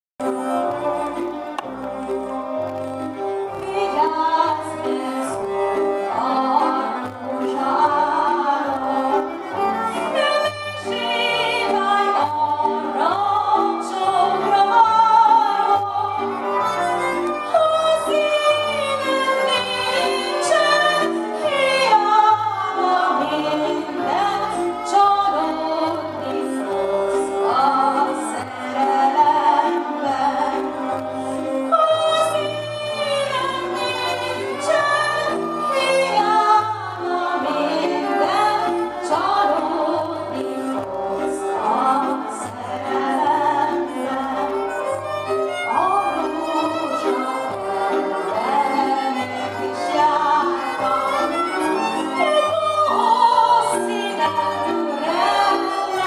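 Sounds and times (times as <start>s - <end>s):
lead violin: 0.2s - 56.0s
woman singing: 3.5s - 16.5s, 17.4s - 56.0s.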